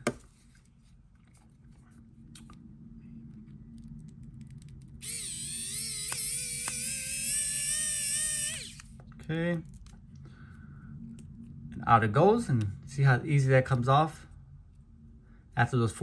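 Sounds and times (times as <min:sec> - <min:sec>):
electric screwdriver motor whine: 0:05.0 - 0:08.9.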